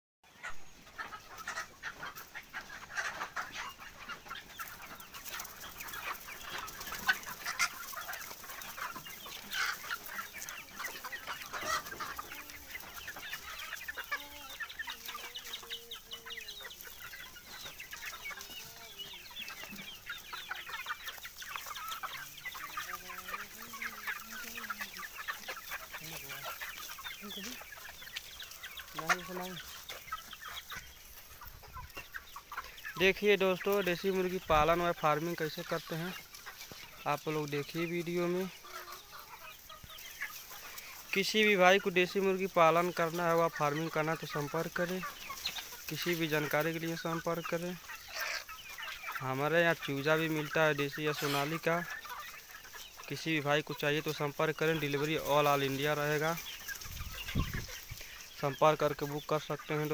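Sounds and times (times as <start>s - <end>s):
chickens clucking: 0.2s - 59.9s.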